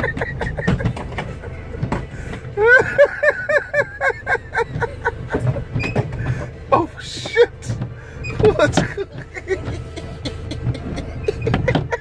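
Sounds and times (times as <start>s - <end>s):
person laughing hard: 0.0s - 1.7s, 2.6s - 5.7s, 8.4s - 12.0s.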